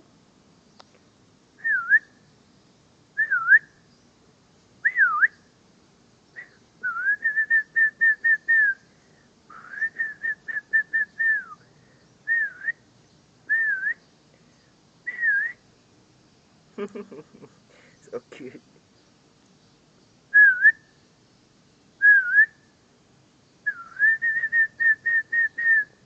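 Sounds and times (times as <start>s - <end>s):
person whistling: 9.5s - 11.6s, 15.1s - 15.6s, 20.4s - 20.8s, 22.0s - 22.5s, 23.7s - 25.9s.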